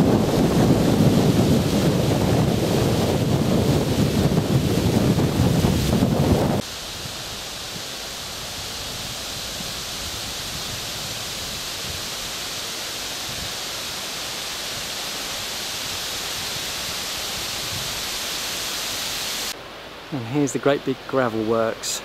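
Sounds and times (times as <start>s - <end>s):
steady outdoor hiss: 0.0s - 22.0s.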